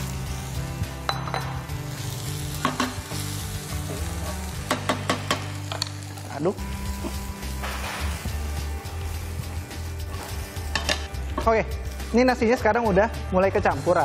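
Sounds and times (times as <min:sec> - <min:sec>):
rice sizzling in a frying pan: 0:01.7 - 0:11.0.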